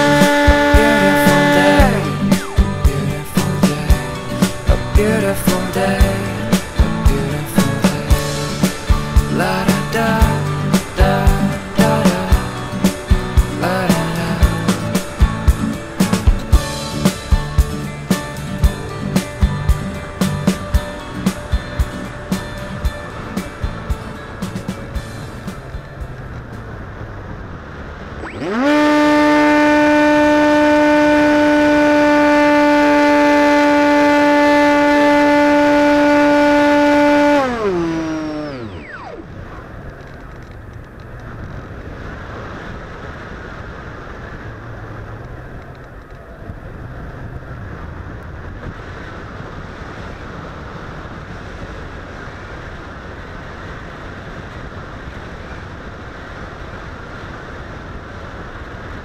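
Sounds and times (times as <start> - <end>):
model plane motor and propeller: 28.3 - 41.4.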